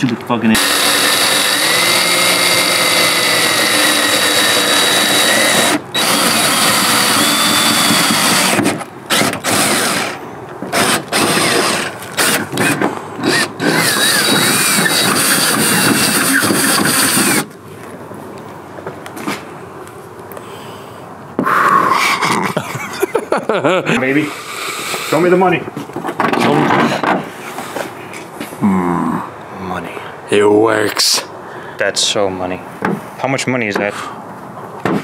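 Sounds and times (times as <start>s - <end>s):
cordless drill whining through metal: 0.6s - 17.5s.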